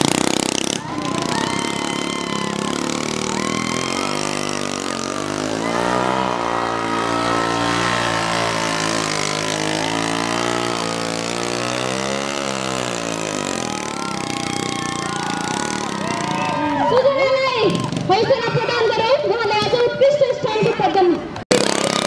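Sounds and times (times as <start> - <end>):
scooter engine revving: 0.0 - 16.8, 21.5 - 22.0.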